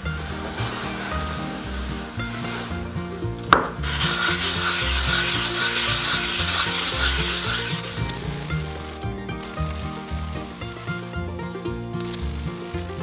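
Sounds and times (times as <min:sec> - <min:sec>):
background music: 0:00.0 - 0:13.0
metal rasping on sandpaper: 0:03.8 - 0:08.6.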